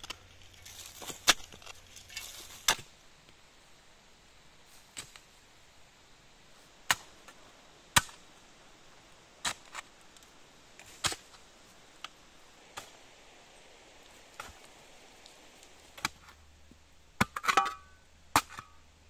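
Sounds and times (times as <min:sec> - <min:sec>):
shovel cutting into soil: 0:10.8 - 0:11.3, 0:15.9 - 0:16.4.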